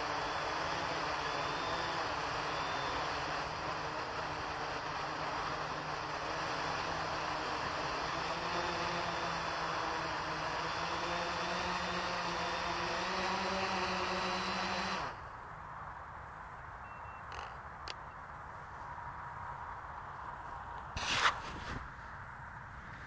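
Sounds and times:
drone motors whining: 0:00.0 - 0:15.2.

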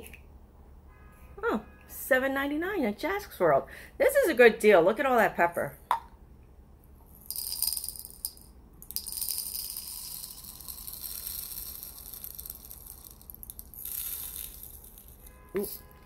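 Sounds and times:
peppercorns rattling into plastic: 0:07.2 - 0:16.0.

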